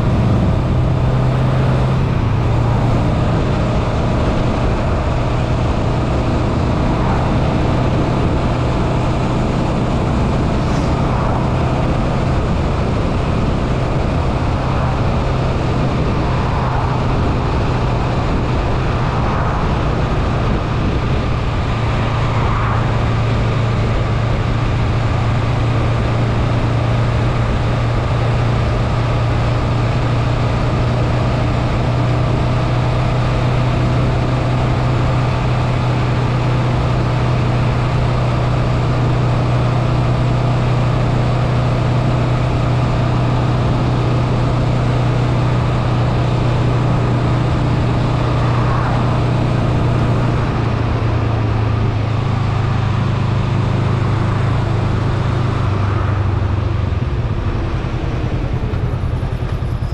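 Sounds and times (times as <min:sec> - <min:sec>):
motorcycle engine humming: 0:00.0 - 0:59.9
wind and road noise: 0:00.0 - 0:59.9.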